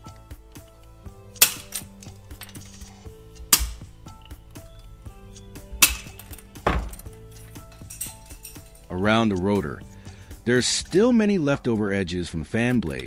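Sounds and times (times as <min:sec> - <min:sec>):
cutters snapping plastic blades: 0:01.3 - 0:02.7.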